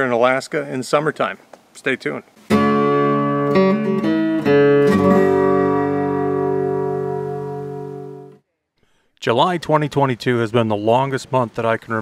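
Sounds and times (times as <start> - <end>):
strummed guitar chords: 2.5 - 8.4.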